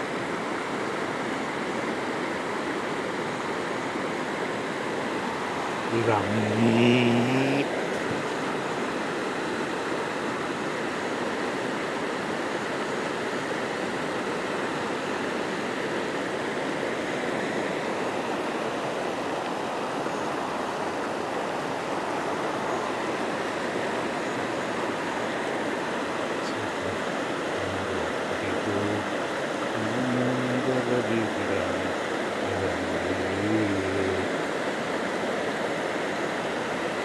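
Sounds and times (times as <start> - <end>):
river rushing over stones: 0.0 - 37.0.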